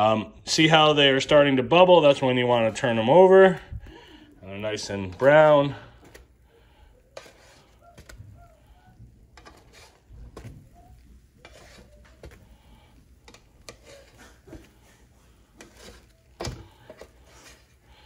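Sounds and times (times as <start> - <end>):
spatula scraping griddle: 4.5 - 18.0
spatula tapping: 9.2 - 14.8.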